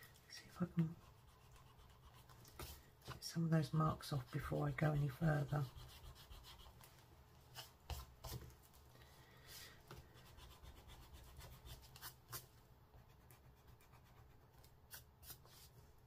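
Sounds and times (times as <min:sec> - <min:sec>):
rubbing on card stock: 0:04.1 - 0:06.8.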